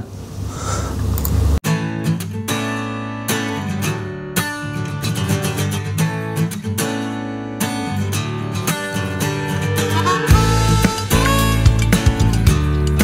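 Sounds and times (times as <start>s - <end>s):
strummed acoustic guitar music: 1.6s - 13.0s.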